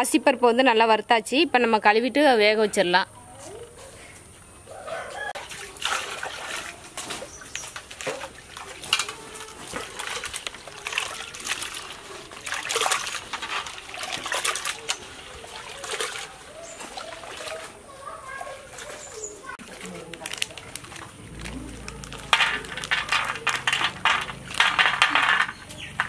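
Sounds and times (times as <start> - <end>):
water splashing and sloshing: 4.9 - 26.0
hands swishing lentils in water: 5.4 - 24.6.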